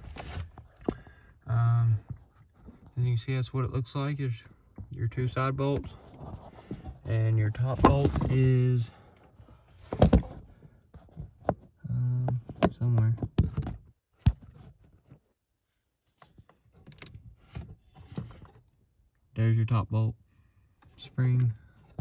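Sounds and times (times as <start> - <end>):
person speaking: 7.0 - 8.9.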